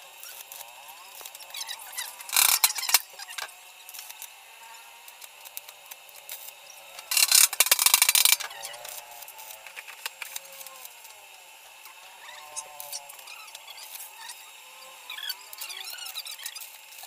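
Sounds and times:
welding arc crackling: 0.0s - 17.0s.

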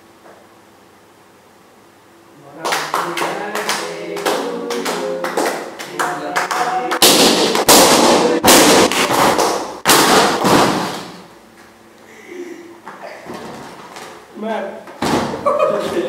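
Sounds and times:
people singing: 2.4s - 8.9s
clapping: 2.6s - 7.8s
balloons popping: 6.5s - 11.2s.

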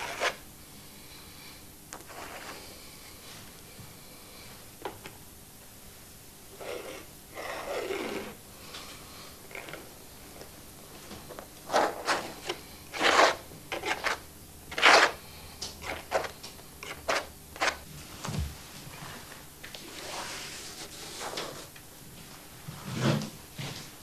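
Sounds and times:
painting knife scraping paint: 0.0s - 0.4s, 2.0s - 2.7s, 6.6s - 8.4s, 11.7s - 15.2s, 15.8s - 17.8s.

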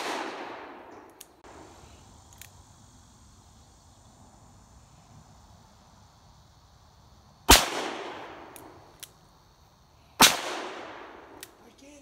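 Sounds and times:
handgun shots: 0.0s - 1.2s.

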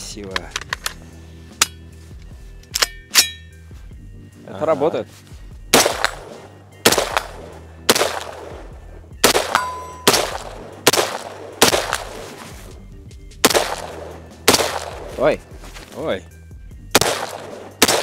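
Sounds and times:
rifle shots with echo: 5.7s - 12.2s, 13.4s - 15.2s, 16.9s - 18.0s.

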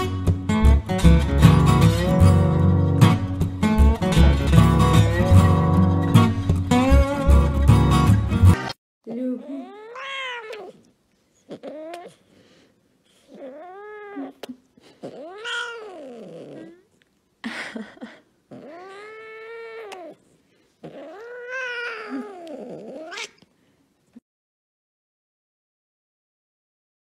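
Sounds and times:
cat meowing: 9.6s - 10.8s, 15.1s - 16.8s, 18.5s - 20.2s, 20.8s - 23.4s.

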